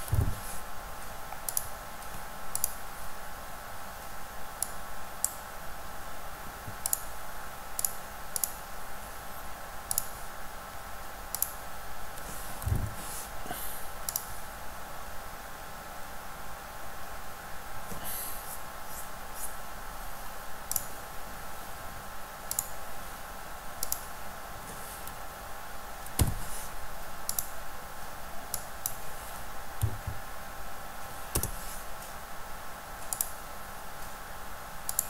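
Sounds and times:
soft low thump: 0.0 - 0.5, 12.6 - 13.0
faint steady whine: 0.0 - 35.0.

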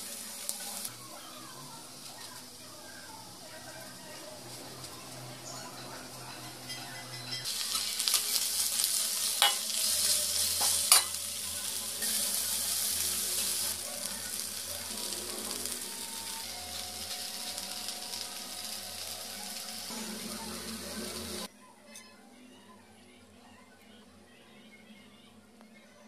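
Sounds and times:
vegetables sizzling in a pan: 0.0 - 6.8, 7.4 - 21.5
metal spoon clacking on a pan: 9.4 - 9.8, 10.6 - 11.2.

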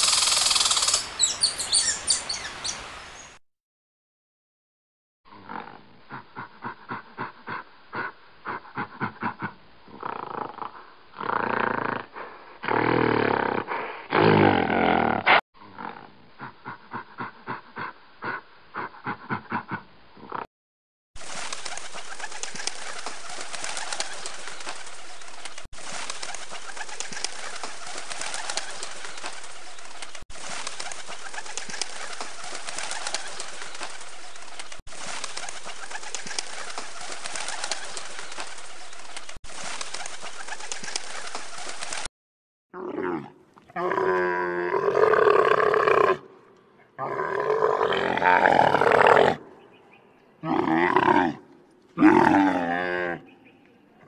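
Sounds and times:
pigeons and birds: 21.2 - 42.1
animal roar: 42.8 - 46.3, 47.0 - 49.5, 50.4 - 53.2.

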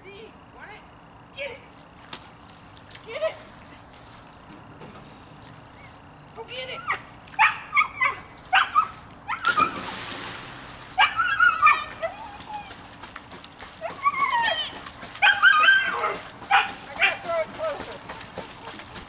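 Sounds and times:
dog yipping and whining: 5.6 - 9.8, 11.0 - 12.8, 13.8 - 17.2
dog splashing into pool: 9.4 - 19.0.

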